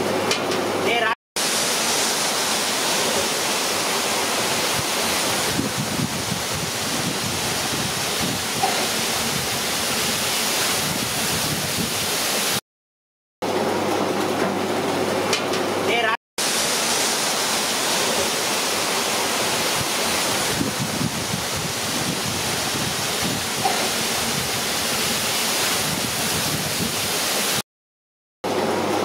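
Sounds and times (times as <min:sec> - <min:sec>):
oil sizzling deep-frying: 0:01.4 - 0:12.6, 0:16.4 - 0:27.6.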